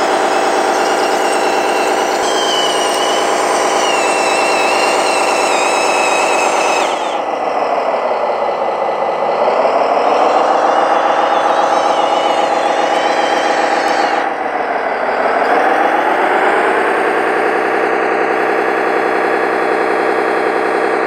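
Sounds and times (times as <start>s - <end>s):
toy bulldozer motor whine: 0.0s - 20.8s.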